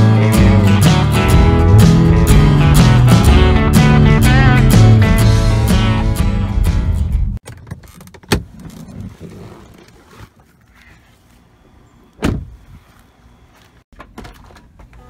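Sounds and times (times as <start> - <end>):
truck door shutting thud: 12.2 - 12.6.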